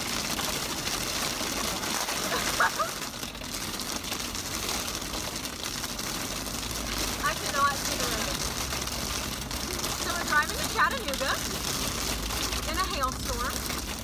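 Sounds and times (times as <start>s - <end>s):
car road and engine noise: 3.3s - 14.0s.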